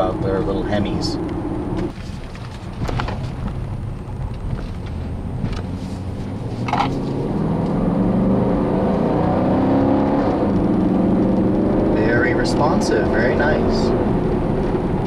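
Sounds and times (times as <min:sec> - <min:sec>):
car engine accelerating inside cabin: 0:03.4 - 0:15.0.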